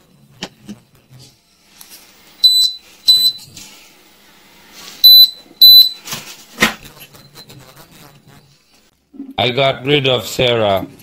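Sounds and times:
short high-pitched electronic beeps: 5.0s - 6.0s.

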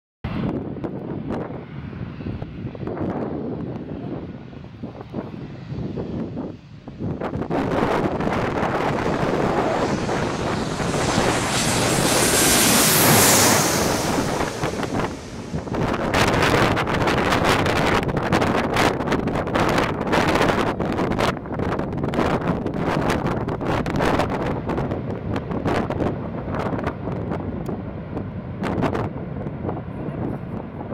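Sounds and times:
jet airliner engine roar: 0.3s - 30.9s
wind buffeting microphone: 0.3s - 30.9s
loud hissing whine: 8.4s - 16.4s.

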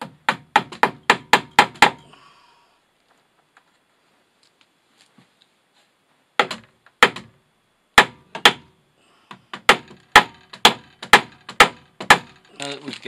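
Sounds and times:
hammer striking staple into wood: 0.0s - 2.0s, 6.4s - 7.3s, 8.0s - 8.7s, 9.5s - 12.4s.

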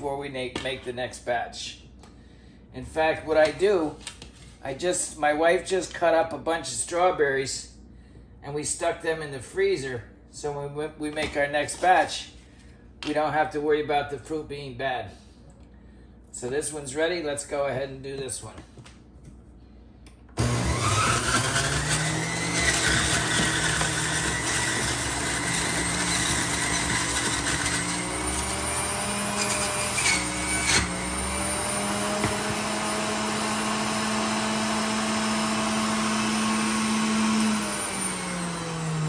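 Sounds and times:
juicer motor whining: 20.4s - 39.0s.

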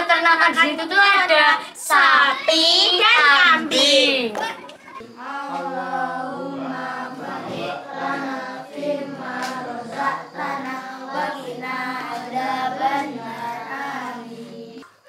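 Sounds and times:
children chanting in unison: 1.6s - 4.4s, 5.0s - 14.9s.

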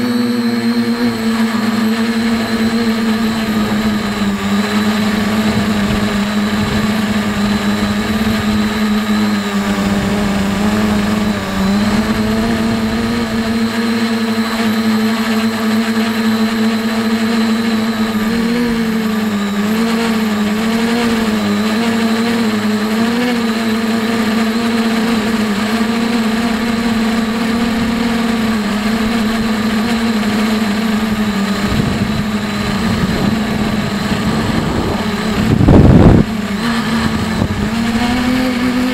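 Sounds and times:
drone motors humming: 0.0s - 38.9s.

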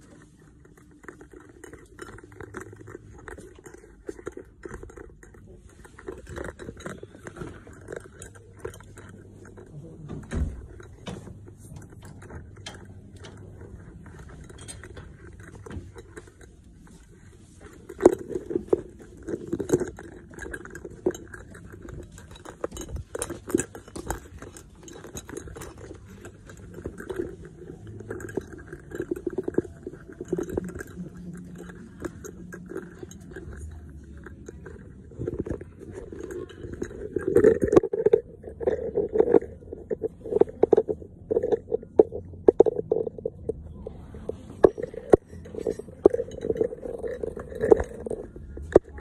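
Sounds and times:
handling clicks and knocks: 0.0s - 49.0s.

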